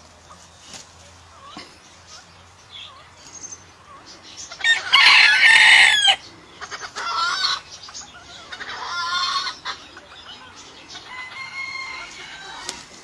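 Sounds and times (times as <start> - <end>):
rooster crowing: 4.6 - 6.2, 11.0 - 12.9.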